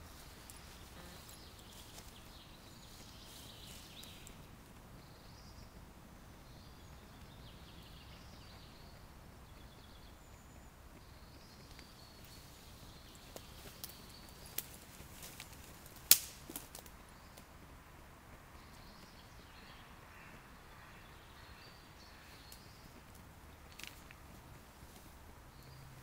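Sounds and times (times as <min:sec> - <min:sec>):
faint rustles and clicks: 0:00.0 - 0:05.0, 0:10.3 - 0:17.7, 0:22.9 - 0:26.0
faint birdsong: 0:00.0 - 0:26.0
low background hiss: 0:00.0 - 0:26.0.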